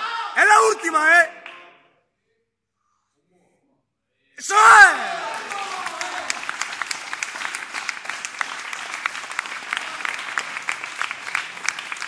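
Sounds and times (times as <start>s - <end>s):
crowd clapping: 5.1s - 12.0s.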